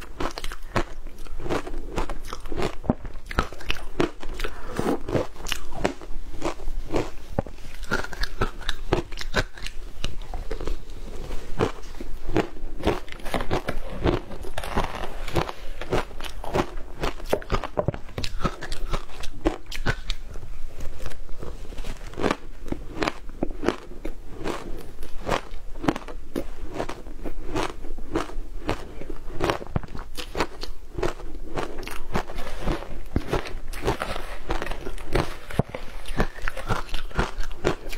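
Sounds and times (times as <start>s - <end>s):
person crunching ice: 0.1s - 20.2s.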